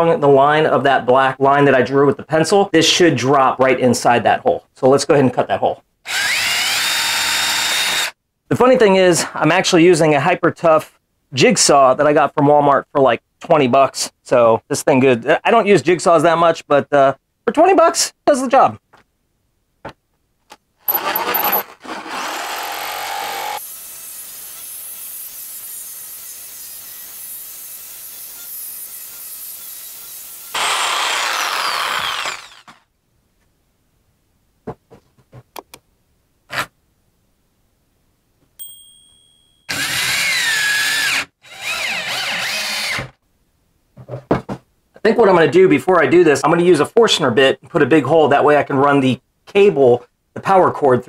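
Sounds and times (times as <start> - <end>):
cordless drill driving screws: 6.1 - 8.2, 20.8 - 32.8, 39.7 - 43.2
jigsaw cutting board: 6.1 - 8.2, 20.8 - 32.8, 39.7 - 43.2
clicks: 35.5 - 35.9.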